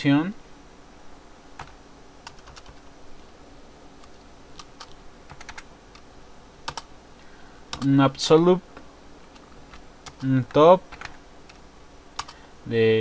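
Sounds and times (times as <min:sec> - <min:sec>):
computer keyboard keystrokes: 0:01.6 - 0:02.9, 0:04.0 - 0:06.0, 0:06.7 - 0:06.9, 0:09.3 - 0:11.6, 0:12.2 - 0:12.4.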